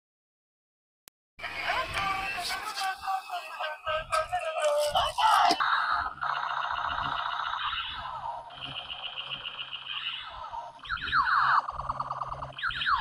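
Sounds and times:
buzzing warbling toy tone: 1.4s - 13.0s
high beeping pattern: 2.6s - 13.0s.

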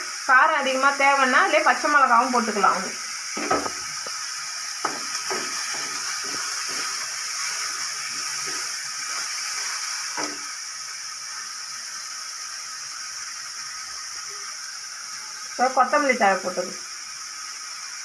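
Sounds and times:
onions sizzling in oil: 0.0s - 18.0s
wooden spatula scraping a pan: 4.8s - 10.4s.

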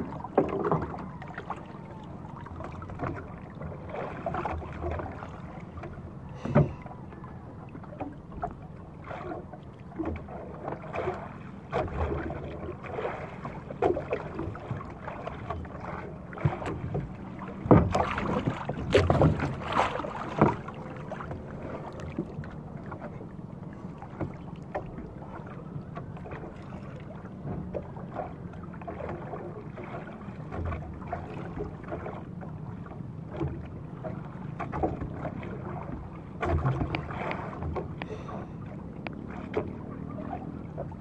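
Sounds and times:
water sloshing against hull: 0.0s - 41.0s
knocks against boat: 5.8s - 6.9s, 16.3s - 21.5s, 36.4s - 38.5s.

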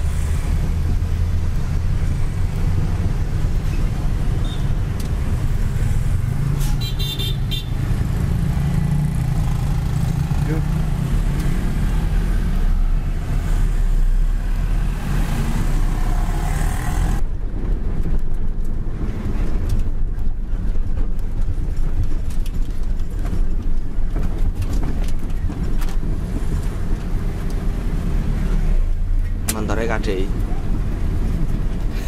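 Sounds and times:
truck diesel engine drone: 0.0s - 17.2s
street traffic noise: 0.0s - 32.0s.

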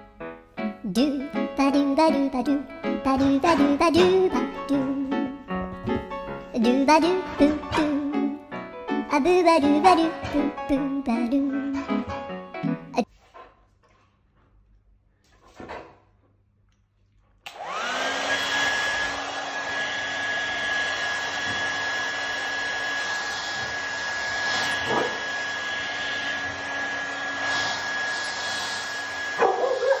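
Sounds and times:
hair dryer running: 17.5s - 30.0s.

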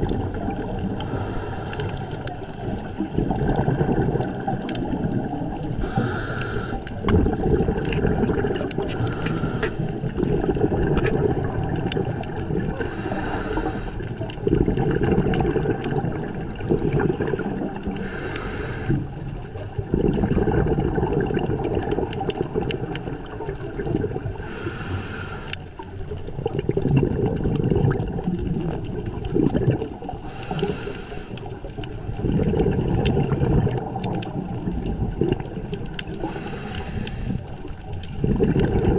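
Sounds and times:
gurgling exhaust bubbles: 0.0s - 24.9s, 25.8s - 38.9s
regulator inhale hiss: 1.0s - 2.3s, 5.8s - 7.0s, 8.9s - 10.0s, 12.7s - 14.2s, 18.0s - 19.2s, 24.4s - 25.6s, 30.2s - 31.6s, 36.1s - 37.6s.

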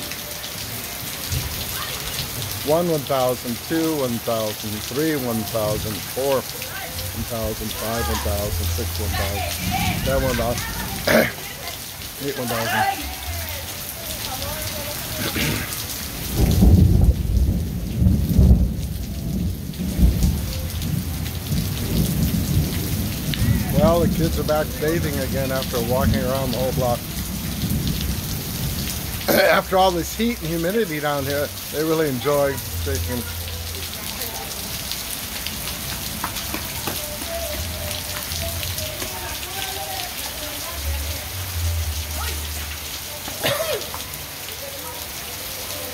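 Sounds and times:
heavy rain: 0.0s - 45.9s
thunder rumbling: 6.8s - 11.3s, 14.2s - 30.6s.

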